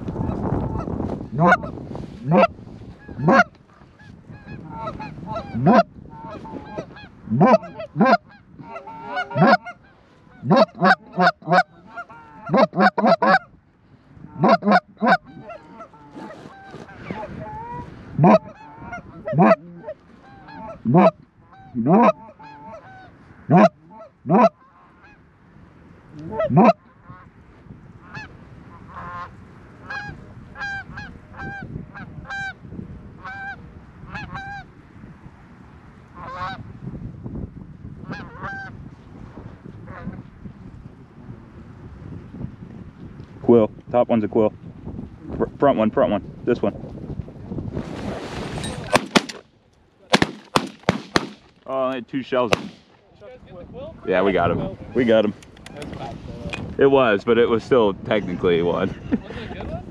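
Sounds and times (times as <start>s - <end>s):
goose honking and clucking: 0.1s - 13.5s, 14.2s - 25.2s, 26.2s - 27.2s, 28.0s - 32.6s, 33.2s - 34.7s, 36.2s - 36.6s, 38.0s - 38.8s.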